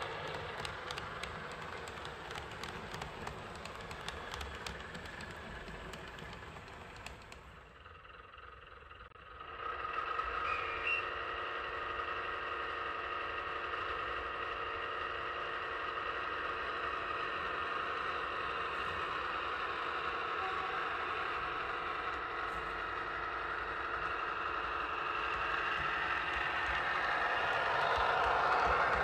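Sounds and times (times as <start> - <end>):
model train engine hum: 0.0 - 29.0
high squeal: 10.4 - 11.4.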